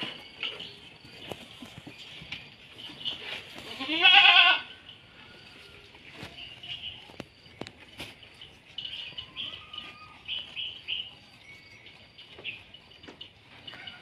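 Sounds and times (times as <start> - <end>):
goats knocking and rustling: 0.0 - 4.4, 6.0 - 14.0
small birds chirping: 5.6 - 13.9.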